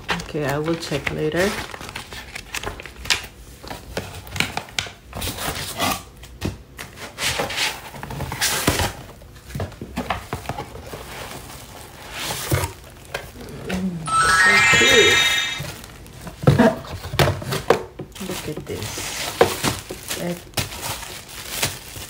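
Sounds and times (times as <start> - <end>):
packaging rustling and crinkling: 1.4 - 3.2, 19.2 - 22.0.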